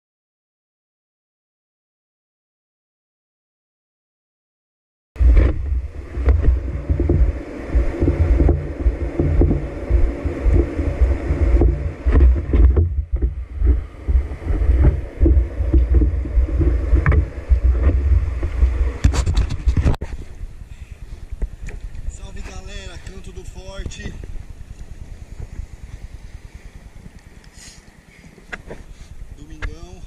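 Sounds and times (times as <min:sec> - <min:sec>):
water sloshing against surfboard: 0:05.2 - 0:20.3.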